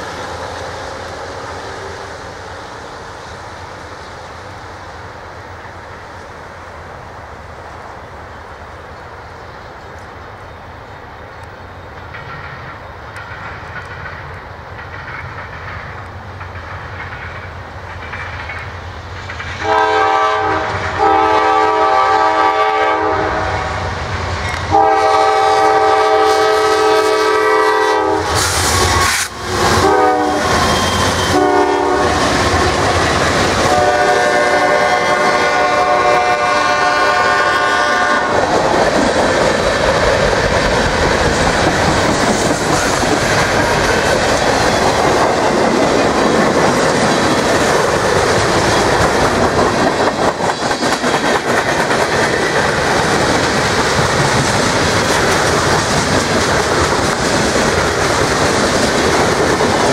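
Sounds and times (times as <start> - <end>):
diesel locomotive engine rumble: 0.0 - 59.9
train air horn blasts: 19.6 - 24.0, 24.7 - 32.8, 33.6 - 38.4.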